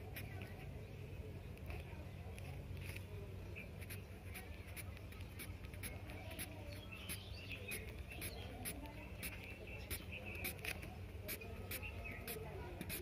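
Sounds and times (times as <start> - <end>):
pencil scratching on paper: 3.8 - 13.0.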